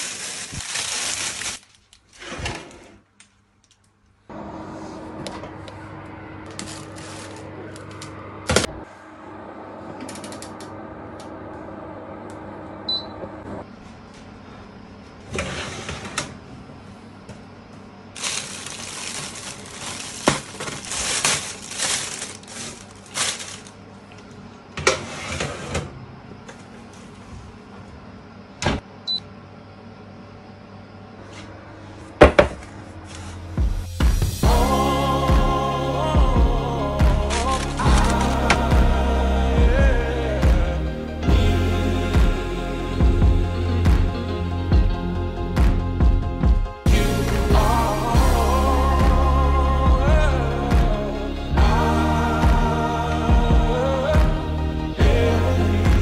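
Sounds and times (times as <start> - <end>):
plastic bag rustling and scraping: 0.0 - 3.0, 6.5 - 7.6, 18.2 - 23.8, 37.2 - 38.7
steady hum: 4.0 - 24.9, 25.7 - 56.0.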